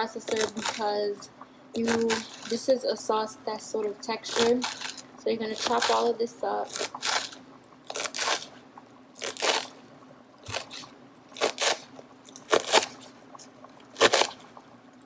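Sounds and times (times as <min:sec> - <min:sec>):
knife chopping herbs: 0:09.2 - 0:09.7, 0:11.4 - 0:13.0, 0:14.0 - 0:14.4.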